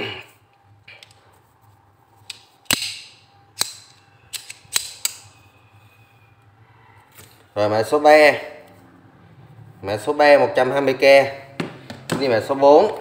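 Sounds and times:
pliers clicking: 0:02.2 - 0:05.4.

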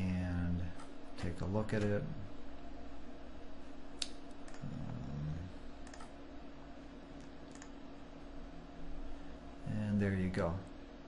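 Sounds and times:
low background hum: 0:00.0 - 0:11.0
computer mouse clicks: 0:04.0 - 0:04.7, 0:05.8 - 0:06.2, 0:07.2 - 0:07.8.

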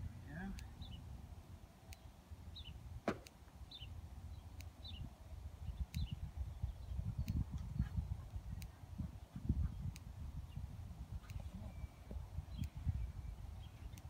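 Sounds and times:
sharp knock: 0:03.0 - 0:03.3
wind rumble on microphone: 0:03.7 - 0:14.0.

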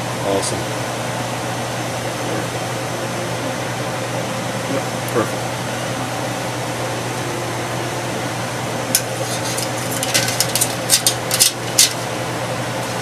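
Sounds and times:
steady hum and hiss: 0:00.0 - 0:13.0
metal tongs clinking on pot: 0:09.0 - 0:12.1.

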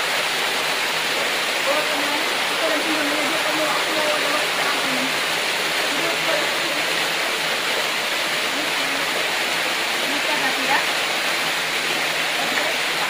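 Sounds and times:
waterfall rushing: 0:00.0 - 0:13.0.

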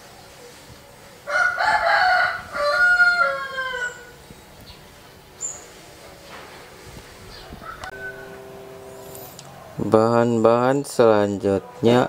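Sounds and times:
rooster crowing: 0:01.3 - 0:04.2, 0:07.6 - 0:08.6.

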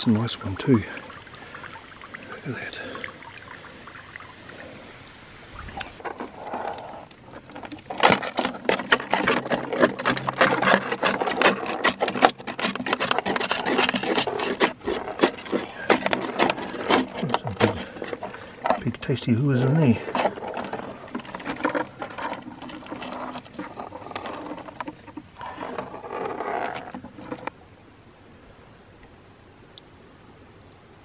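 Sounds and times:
crayfish scrabbling on plastic: 0:05.6 - 0:27.6.

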